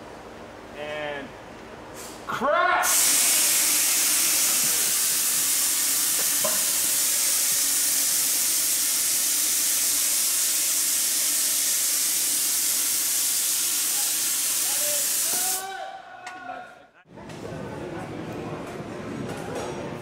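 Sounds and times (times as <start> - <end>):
vapour jet hissing: 2.9 - 15.6.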